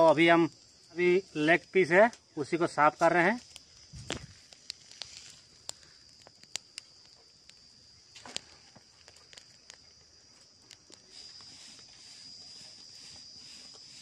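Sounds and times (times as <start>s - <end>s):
skin peeling clicks and crackles: 3.4s - 11.0s.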